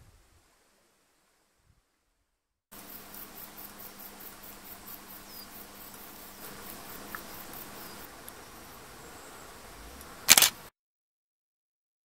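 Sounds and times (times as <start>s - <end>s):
insects chirping: 2.7s - 10.7s.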